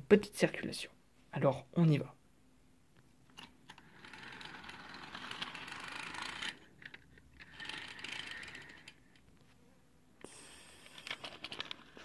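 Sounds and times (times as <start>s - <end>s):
model train wheels rattling: 3.7s - 9.0s.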